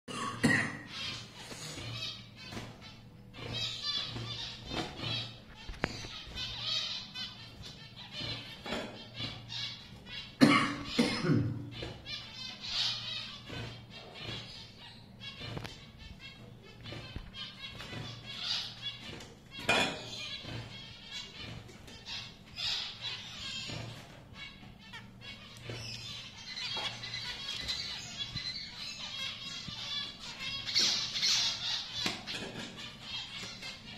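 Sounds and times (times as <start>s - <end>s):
low cough-like sound: 0.1s - 0.9s, 10.4s - 11.7s
finches chirping: 0.1s - 33.9s.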